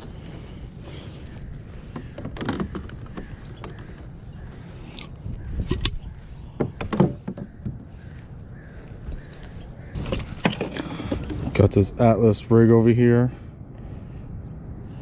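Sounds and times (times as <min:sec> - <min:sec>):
steady low rumble: 0:00.0 - 0:02.2, 0:11.4 - 0:15.0
fishing tackle clicks and knocks: 0:01.9 - 0:04.0.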